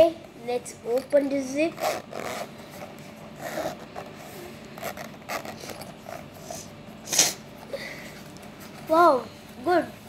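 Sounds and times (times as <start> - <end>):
zipper pulled open: 1.7 - 7.4.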